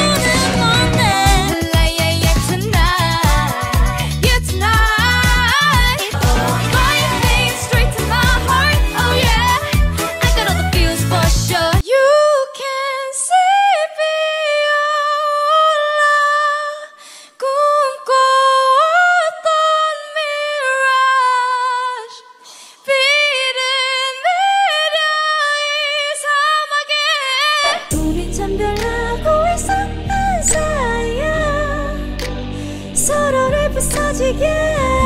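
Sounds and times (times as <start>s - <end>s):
woman singing a cappella: 0.0s - 32.3s, 32.9s - 35.0s.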